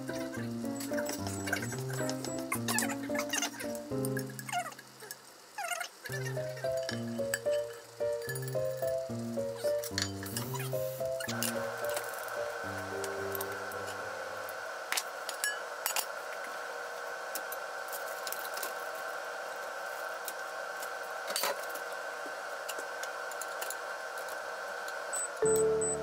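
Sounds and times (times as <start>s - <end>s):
background music: 0.0s - 4.6s, 6.1s - 14.6s, 25.4s - 26.0s
oil hissing in a frying pan: 0.0s - 21.2s
faint even hum: 6.1s - 15.2s, 25.2s - 26.0s.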